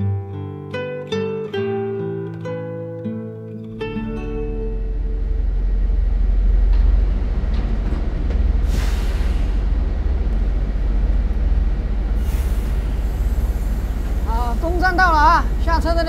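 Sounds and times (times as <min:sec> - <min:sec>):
bus engine and road rumble: 0:04.2 - 0:16.0
hissing air bursts: 0:08.6 - 0:10.1, 0:12.1 - 0:14.9.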